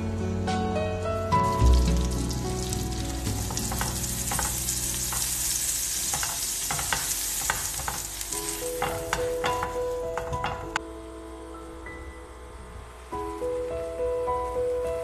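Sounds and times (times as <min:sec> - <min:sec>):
butter sizzling in a pan: 0:01.4 - 0:10.7.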